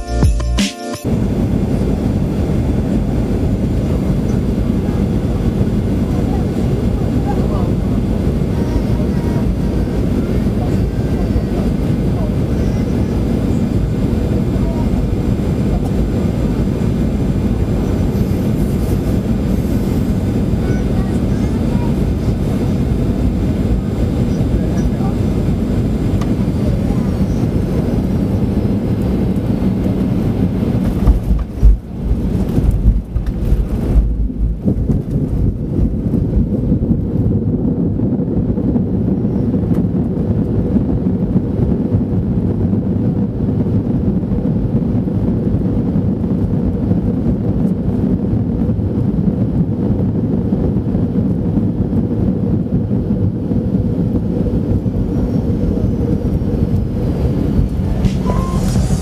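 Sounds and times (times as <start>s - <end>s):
aircraft cabin rumble: 1.0s - 59.0s
heavy low thumps and jolts: 25.2s - 59.0s.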